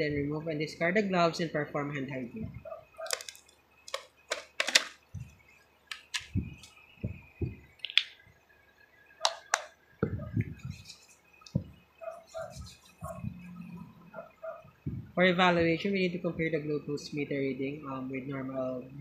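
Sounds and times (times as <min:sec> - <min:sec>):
rubber gloves peeled and snapping: 0:03.0 - 0:05.0
hands rubbing together: 0:09.3 - 0:11.3, 0:12.0 - 0:13.4
dull handling knocks: 0:11.5 - 0:11.8.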